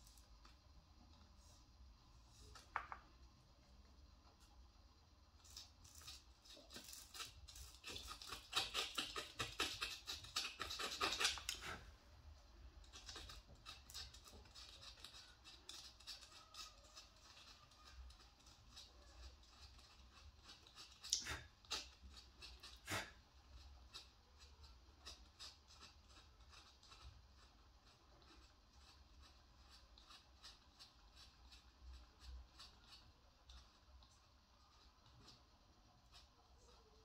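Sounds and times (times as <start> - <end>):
pen nib scratching gourd: 4.3 - 37.0.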